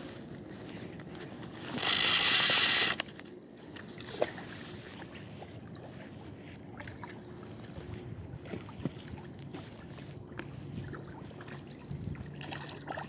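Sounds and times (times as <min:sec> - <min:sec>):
fishing reel drag buzzing: 0:01.7 - 0:03.1.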